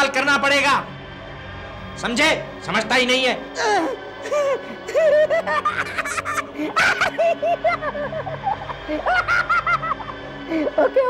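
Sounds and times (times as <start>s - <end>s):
man cackling with laughter: 4.9s - 10.1s.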